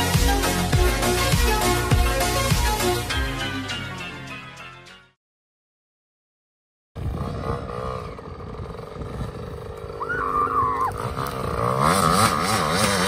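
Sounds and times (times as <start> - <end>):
dirt bike engine revving: 7.0 - 13.0.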